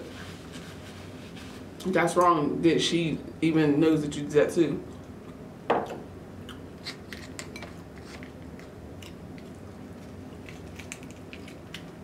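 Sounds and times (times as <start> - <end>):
lobster shell clicking and crackling: 8.3 - 12.0.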